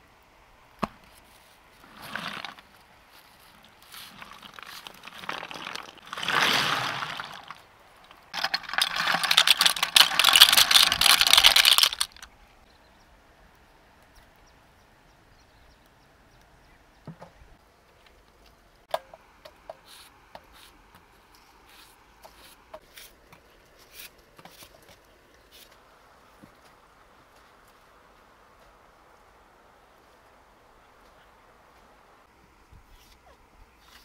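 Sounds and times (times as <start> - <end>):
leaves scrubbing a clay pot: 1.8 - 7.7, 19.7 - 25.8.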